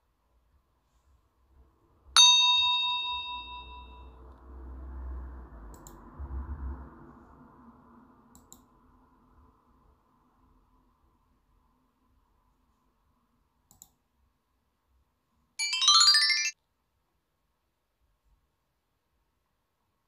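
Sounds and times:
bell-like chime ding: 0:02.2 - 0:04.2, 0:15.6 - 0:16.6.

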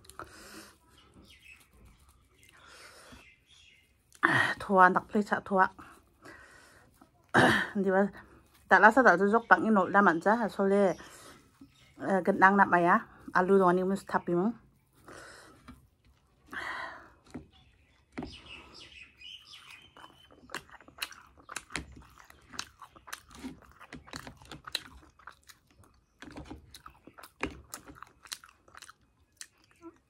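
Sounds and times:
chewing crunchy fried bread: 0:00.0 - 0:04.2, 0:13.0 - 0:30.0.

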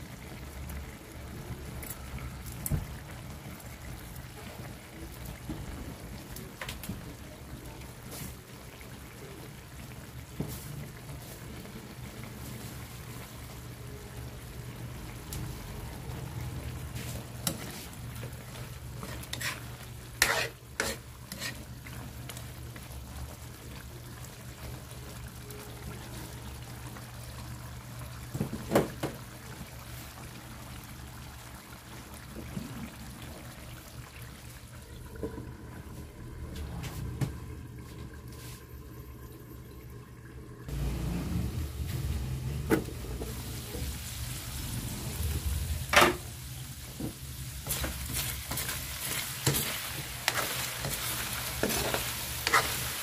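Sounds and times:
sauce simmering and bubbling: 0:00.0 - 0:53.0
ladle stirring and scraping: 0:16.9 - 0:22.4, 0:47.6 - 0:53.0.

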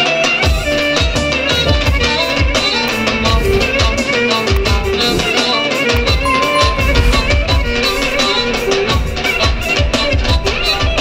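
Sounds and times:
plucked string melody: 0:06.3 - 0:07.6.

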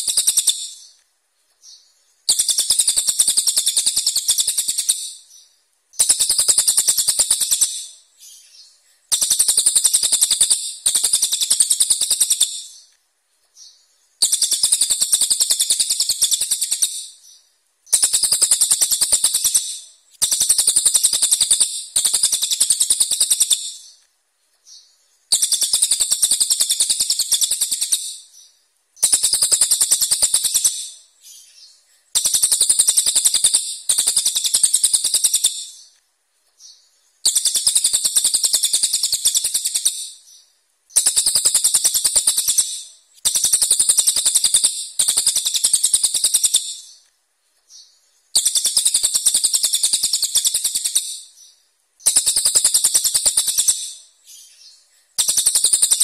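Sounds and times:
songbird rattling calls: 0:00.0 - 0:01.0, 0:01.6 - 0:12.9, 0:13.6 - 0:24.0, 0:24.7 - 0:35.9, 0:36.6 - 0:47.0, 0:48.3 - 0:56.0.

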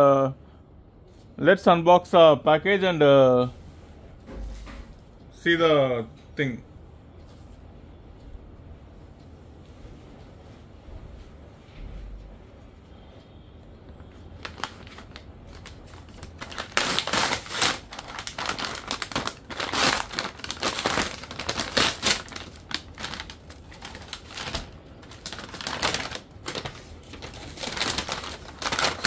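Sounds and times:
paper envelope rustling: 0:14.4 - 0:29.0.

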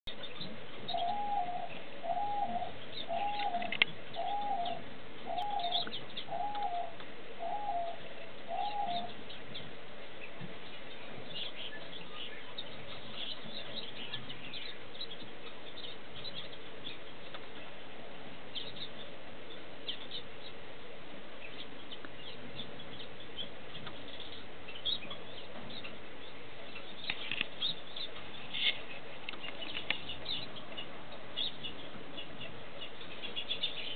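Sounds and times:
finches chirping: 0:00.1 - 0:17.5, 0:18.5 - 0:20.6, 0:21.4 - 0:33.9
bird repeated rising falling call: 0:00.9 - 0:09.2.

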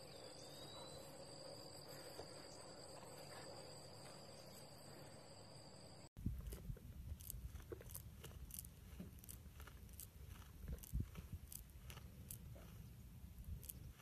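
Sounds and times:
goat chewing: 0:06.3 - 0:14.0.

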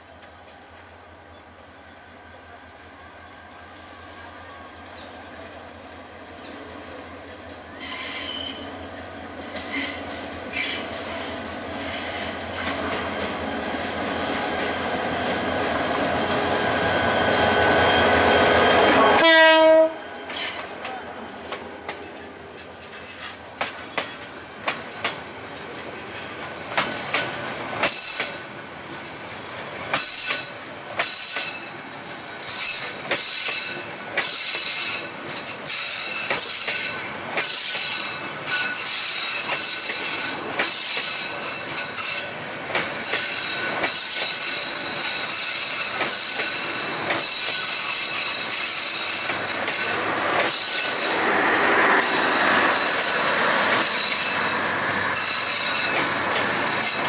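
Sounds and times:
diesel locomotive engine passing: 0:00.0 - 0:30.0, 0:36.0 - 0:57.0
wheel squeal: 0:07.8 - 0:08.8, 0:09.4 - 0:12.6.

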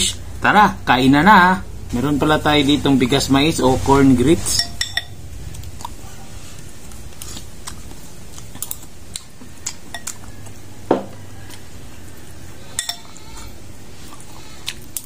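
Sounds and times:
steady low hum: 0:00.0 - 0:15.0
spoon clinking on glass bowl: 0:04.6 - 0:05.2, 0:12.7 - 0:13.1.

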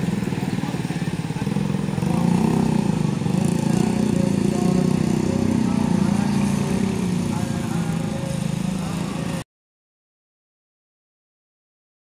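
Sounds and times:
motorcycle engines passing: 0:00.0 - 0:09.4.

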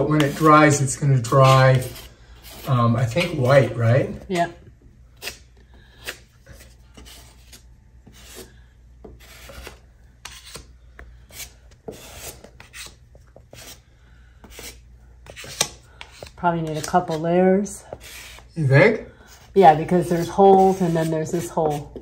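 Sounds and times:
putty knife scraping wall: 0:00.0 - 0:04.5, 0:09.1 - 0:10.7, 0:11.3 - 0:13.8, 0:14.4 - 0:18.5.

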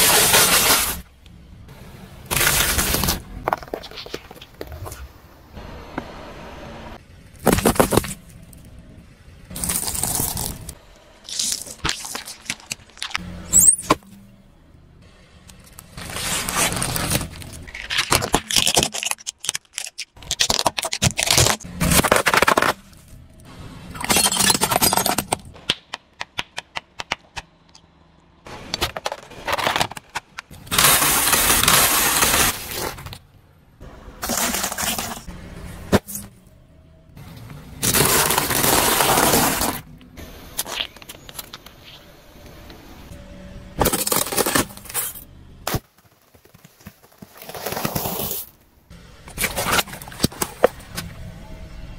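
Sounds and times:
objects crushed under car tyre: 0:07.4 - 0:08.2, 0:16.0 - 0:23.2, 0:28.6 - 0:33.2, 0:37.8 - 0:39.9, 0:43.8 - 0:48.6.

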